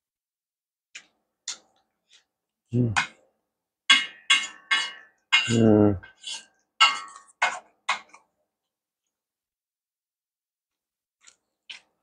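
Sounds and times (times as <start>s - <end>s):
utensils scraping a metal bowl: 3.9s - 8.1s.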